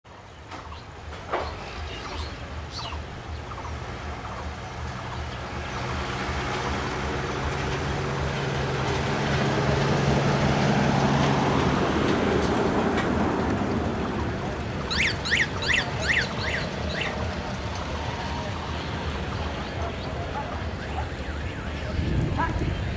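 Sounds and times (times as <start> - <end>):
bird chirping: 0.3 - 5.9, 14.8 - 17.2.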